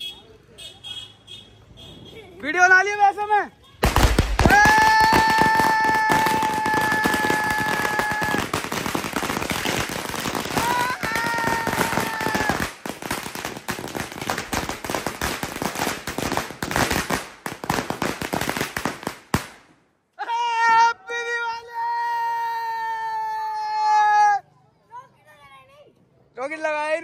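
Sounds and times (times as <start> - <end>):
firecrackers going off: 3.8 - 19.7.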